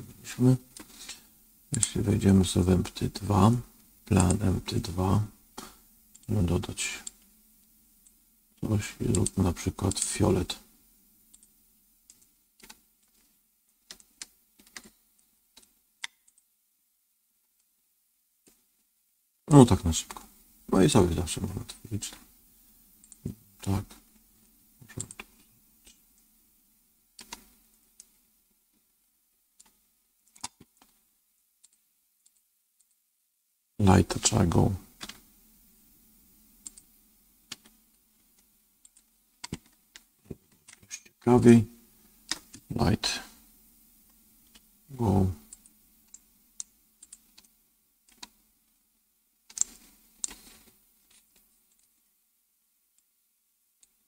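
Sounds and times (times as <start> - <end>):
mouse and keyboard clicks: 4.2 - 4.4, 12.1 - 13.2, 13.9 - 15.0, 24.8 - 26.0, 27.2 - 28.1, 29.6 - 31.0, 35.0 - 35.2, 36.6 - 36.9, 37.5 - 37.8, 45.5 - 47.5, 48.1 - 48.4, 49.5 - 50.4.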